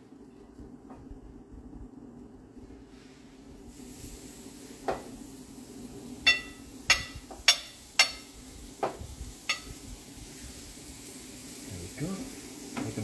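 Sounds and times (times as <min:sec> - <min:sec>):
faint steady hiss: 0:00.0 - 0:13.0
burgers knocking on metal grill: 0:06.3 - 0:09.8.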